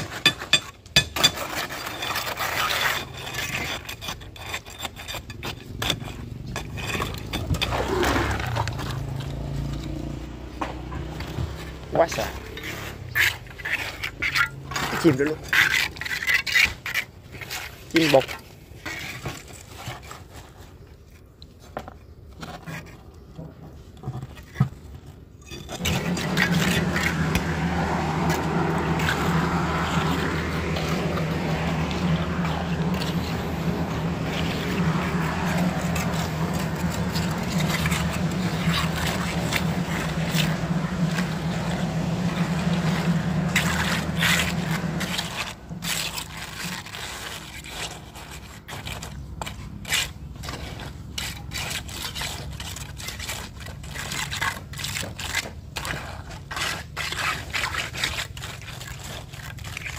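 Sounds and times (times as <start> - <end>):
trowel scraping wet concrete: 0.0 - 59.9
engine hum: 5.2 - 16.1, 25.6 - 59.9.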